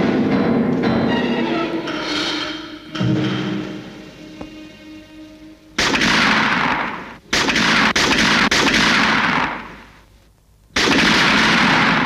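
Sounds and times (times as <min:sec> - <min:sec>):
gunfire bursts: 0:05.8 - 0:10.0, 0:10.8 - 0:12.0.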